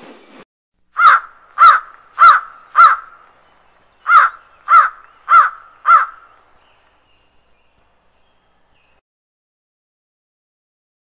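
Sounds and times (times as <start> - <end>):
bird calling loudly: 1.0 - 7.2.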